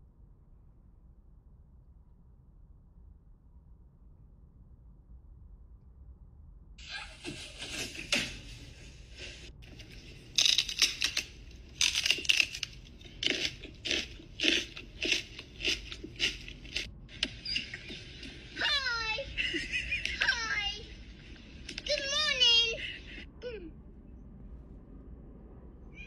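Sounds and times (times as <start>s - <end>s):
loud crackly crunching: 7.2s - 18.8s.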